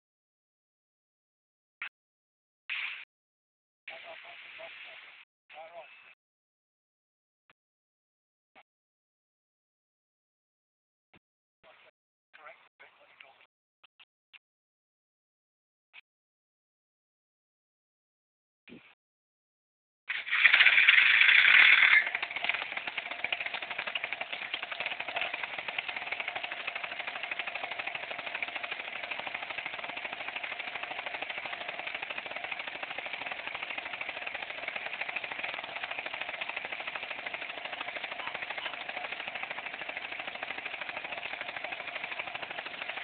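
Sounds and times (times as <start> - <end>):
paramotor engine and propeller rattling: 20.1 - 43.0.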